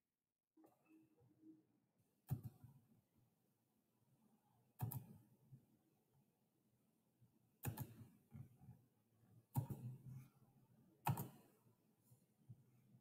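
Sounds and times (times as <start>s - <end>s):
computer mouse clicks: 2.3s - 2.7s, 4.8s - 5.2s, 7.6s - 8.1s, 9.5s - 10.0s, 11.0s - 11.6s.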